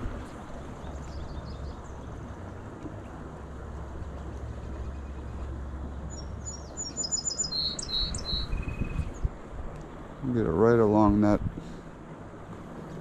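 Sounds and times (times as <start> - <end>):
songbird chirping and trilling: 0.6 - 2.2, 4.6 - 9.3.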